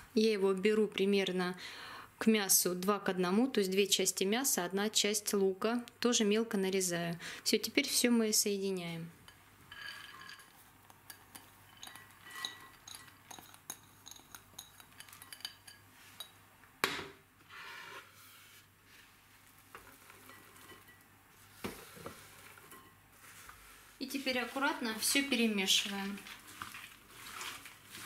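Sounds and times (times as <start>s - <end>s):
glass bowls clinking: 9.3s - 16.4s, 20.2s - 21.1s.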